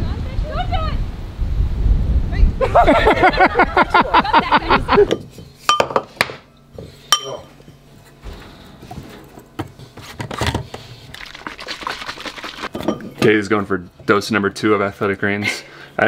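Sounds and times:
kitchen clinks and knocks: 5.1 - 6.2, 12.7 - 13.3.

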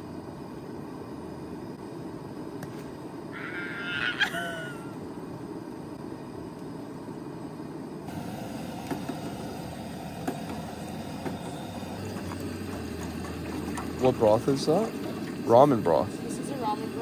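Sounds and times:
camp stove flame rushing: 5.0 - 17.0.

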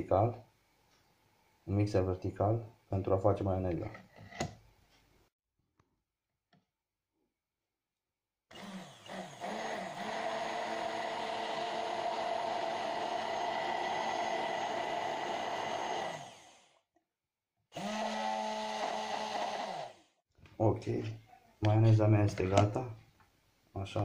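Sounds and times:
immersion blender motor running: 8.5 - 16.8, 17.7 - 20.2.

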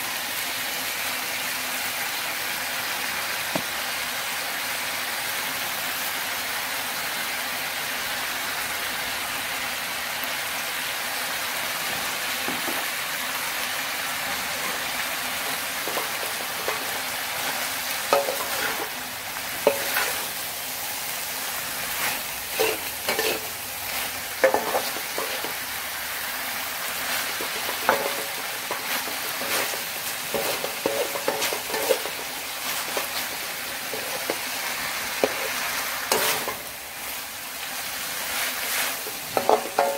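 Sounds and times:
food sizzling in a wok: 0.0 - 39.9
metal spatula scraping a wok: 14.4 - 20.4, 21.5 - 25.7, 26.9 - 37.2, 38.2 - 39.9.

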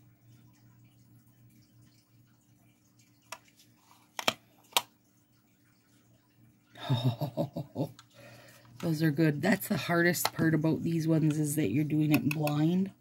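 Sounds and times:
person speaking: 8.7 - 13.0.

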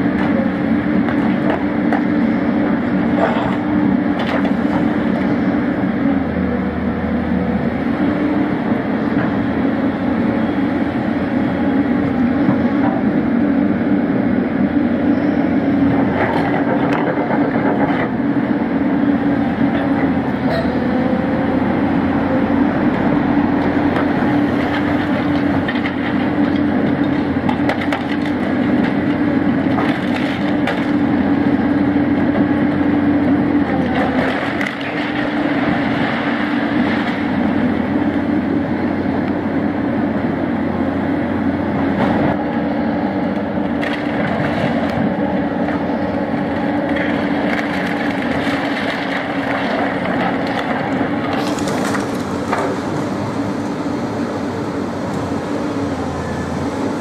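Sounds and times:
diesel engine running: 0.0 - 57.0
timber cracking and splintering: 46.9 - 52.8.

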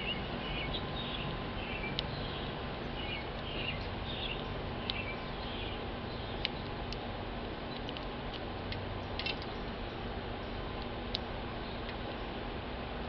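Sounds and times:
bird chirps: 0.0 - 6.7
steady background hiss: 0.0 - 13.0.

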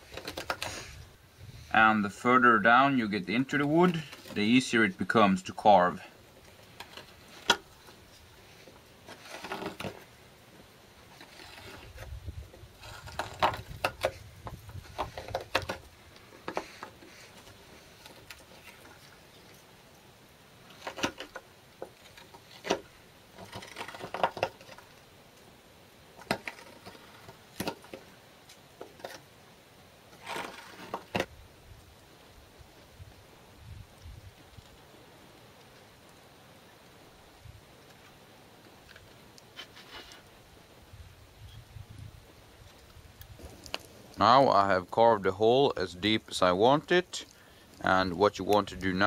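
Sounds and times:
knife scraping wood: 0.0 - 1.0, 6.4 - 10.1, 11.0 - 19.7, 20.7 - 25.0, 26.2 - 29.3, 30.1 - 31.3, 39.0 - 40.3.

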